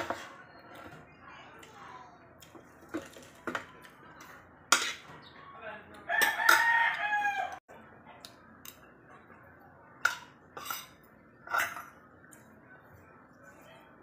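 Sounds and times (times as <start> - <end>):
cutlery clinking against bowls: 0.0 - 1.0, 2.4 - 5.2, 6.2 - 7.0, 10.0 - 12.0
rooster crowing: 6.1 - 7.6.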